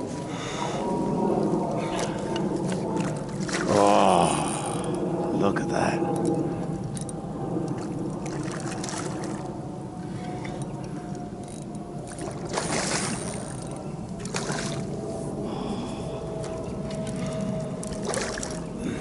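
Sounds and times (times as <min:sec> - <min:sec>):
low rumble: 0:00.0 - 0:19.0
fish splashing in water: 0:01.5 - 0:04.1, 0:07.7 - 0:09.5, 0:12.0 - 0:15.0, 0:16.9 - 0:18.7.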